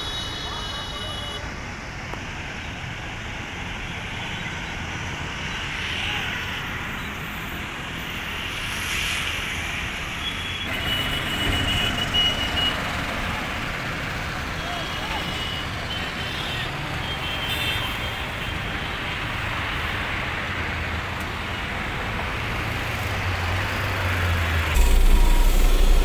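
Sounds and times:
road traffic hum: 0:00.0 - 0:26.0
vehicles passing: 0:00.0 - 0:26.0
short high tone: 0:24.8 - 0:26.0.

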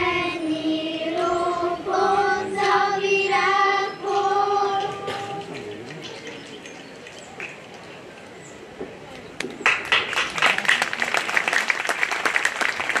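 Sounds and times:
children singing: 0:00.0 - 0:05.7.

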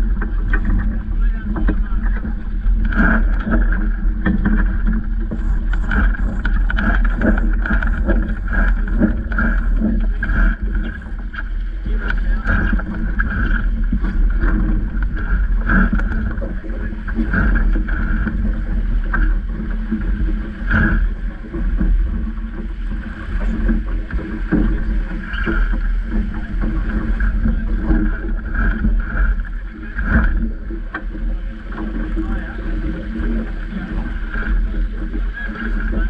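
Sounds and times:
water rushing along hull: 0:00.0 - 0:36.0
wind buffeting microphone: 0:00.0 - 0:36.0.

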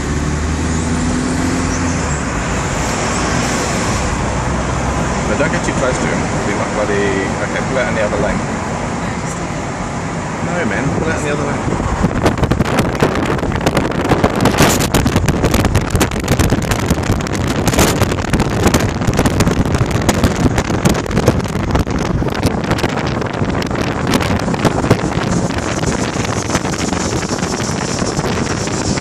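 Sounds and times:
vehicle and tyre rush: 0:00.0 - 0:29.0
wind buffeting microphone: 0:10.0 - 0:29.0.

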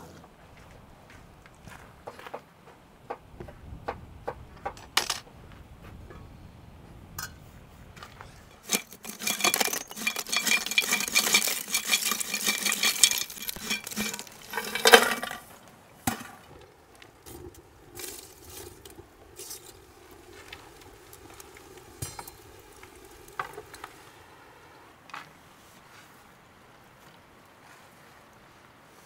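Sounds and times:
charcoal lumps clattering: 0:08.2 - 0:24.2.

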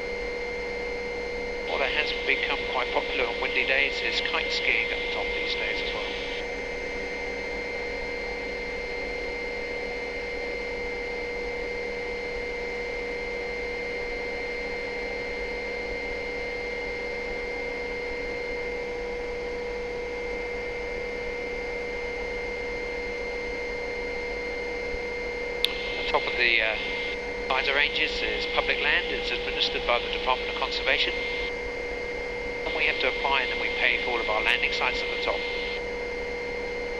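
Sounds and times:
helicopter droning: 0:25.7 - 0:35.8.

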